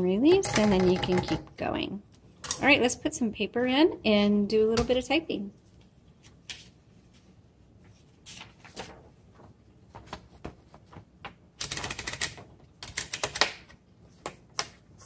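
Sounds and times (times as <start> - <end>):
paper rustling: 6.2 - 11.4.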